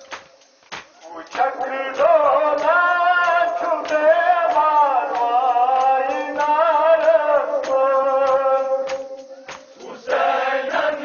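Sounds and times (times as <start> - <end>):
chest slaps: 0.1 - 1.0
people chanting a lament: 0.3 - 11.0.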